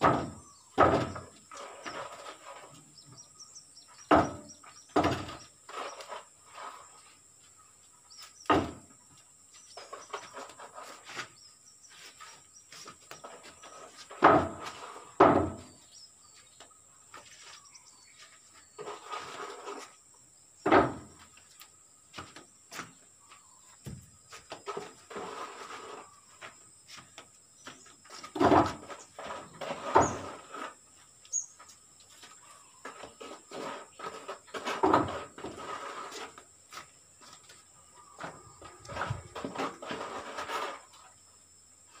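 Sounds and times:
sharp knocks on wood: 0.0s - 1.3s, 4.1s - 5.4s, 8.4s - 8.9s, 14.2s - 15.7s
scraping and shuffling: 4.6s - 20.1s, 20.9s - 41.3s.

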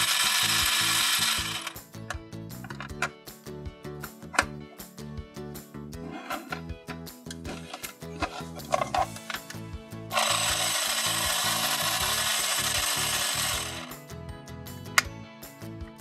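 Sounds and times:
small electric motor whirring: 0.0s - 1.8s, 10.1s - 14.0s
background music: 0.0s - 16.0s.

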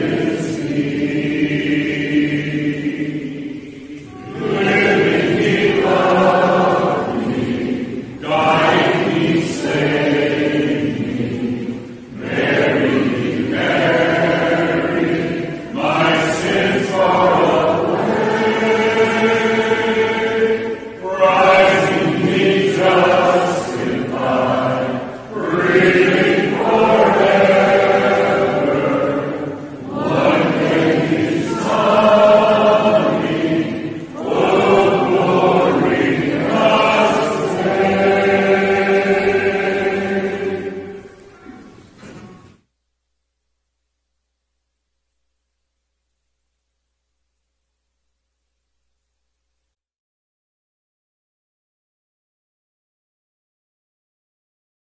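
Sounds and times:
mixed choir singing a hymn: 0.0s - 42.6s.

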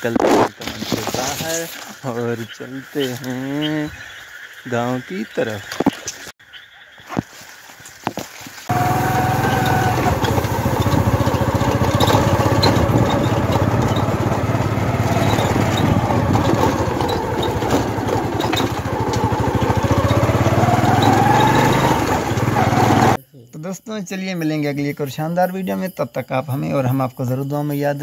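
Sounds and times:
small motorcycle engine running: 8.7s - 23.2s.

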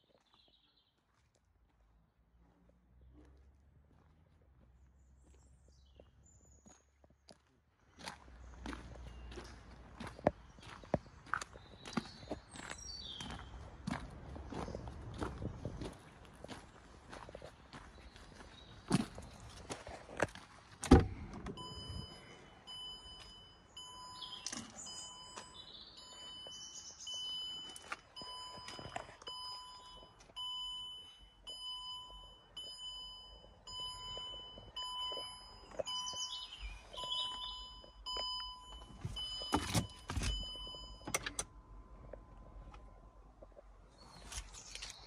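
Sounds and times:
birds chirping: 4.8s - 20.0s, 20.9s - 41.1s
car door thunk: 20.8s - 21.6s
heavy thunks: 20.8s - 22.2s
dashboard warning chime beeping: 21.5s - 43.3s.

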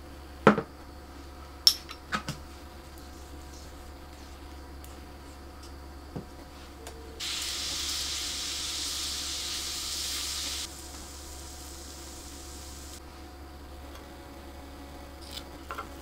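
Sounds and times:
liquid sizzling in frying pan: 7.2s - 13.0s.

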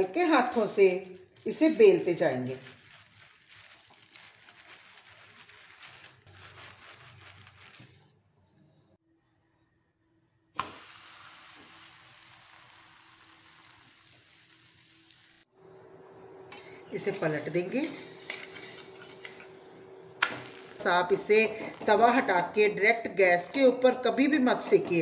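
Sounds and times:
plastic sheet rustling: 0.3s - 8.1s
flatbread sizzling on iron griddle: 10.6s - 15.5s, 20.2s - 22.0s.

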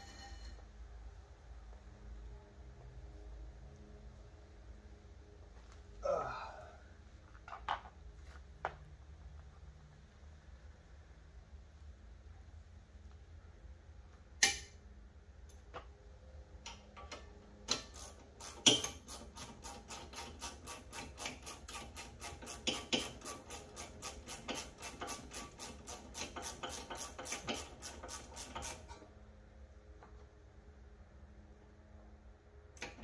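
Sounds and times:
hand ratchet clicking: 17.7s - 28.8s.

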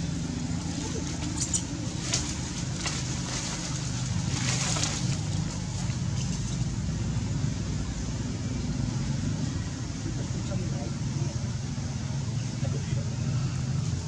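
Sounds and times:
low motor hum: 0.0s - 14.0s.

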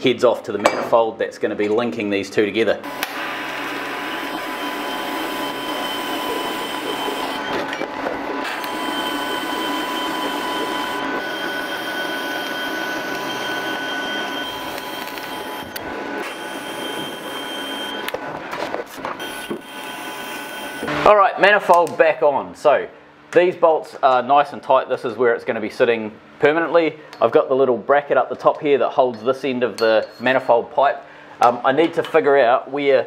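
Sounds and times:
faint high whine: 4.0s - 18.2s.

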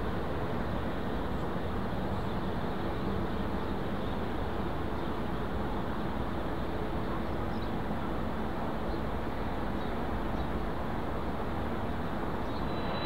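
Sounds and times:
distant jet engines idling: 11.0s - 13.0s.

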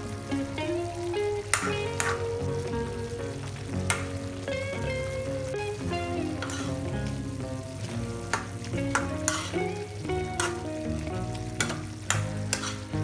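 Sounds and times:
food sizzling in sauce: 0.0s - 13.0s
soft background melody: 0.0s - 13.0s
metal spoon scraping pan: 1.5s - 2.3s, 6.4s - 6.9s, 8.3s - 9.7s, 10.3s - 10.7s, 11.6s - 13.0s.

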